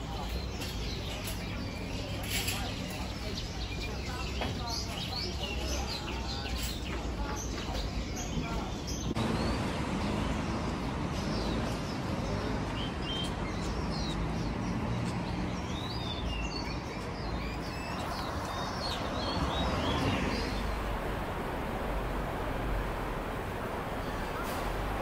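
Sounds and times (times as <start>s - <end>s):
small birds chirping: 0.0s - 25.0s
low background rumble: 19.0s - 25.0s.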